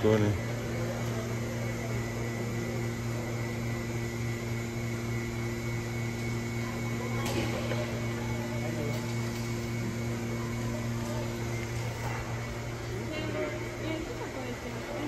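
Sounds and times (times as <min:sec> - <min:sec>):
mechanical hum with high whine: 0:00.0 - 0:15.0.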